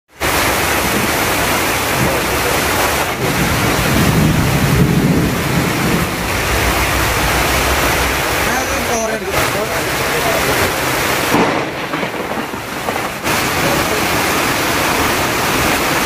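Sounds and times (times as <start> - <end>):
heavy rain hissing: 0.1 - 16.0
water pouring onto ground: 0.1 - 16.0
low rumble: 3.2 - 10.5.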